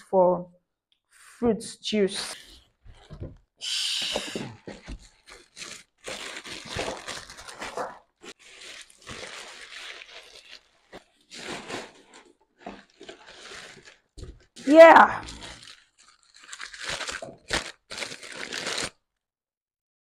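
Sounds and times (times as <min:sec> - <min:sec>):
plastic bag crinkling: 0:02.4 - 0:03.4, 0:04.3 - 0:19.0
cardboard insert crunching: 0:04.1 - 0:19.0.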